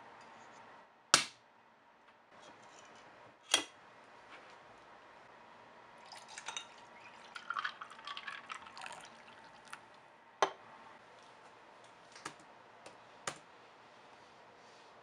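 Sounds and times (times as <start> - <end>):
drink pouring over ice: 6.0 - 9.9.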